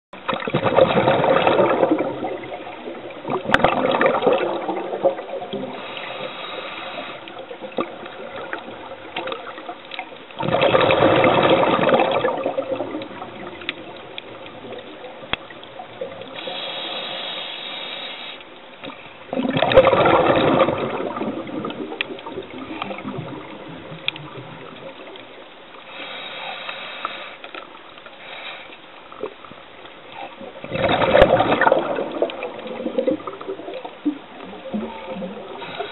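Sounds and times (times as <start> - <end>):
gurgling exhaled bubbles: 0.2 - 9.8, 10.4 - 17.4, 18.8 - 25.4, 30.1 - 35.9
regulator inhale hiss: 5.7 - 7.5, 16.3 - 18.5, 25.8 - 28.9, 35.5 - 35.9.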